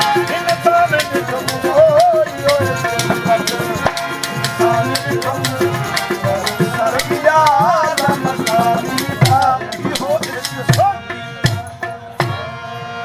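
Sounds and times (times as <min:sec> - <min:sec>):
rattling hand percussion: 0:00.0 - 0:12.5
harmonium: 0:00.0 - 0:13.0
tabla: 0:00.0 - 0:13.0.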